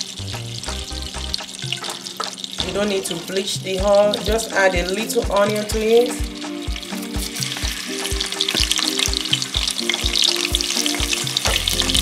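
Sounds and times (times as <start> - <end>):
music with steady beat: 0.0 - 12.0
onion sizzling in oil: 0.0 - 12.0.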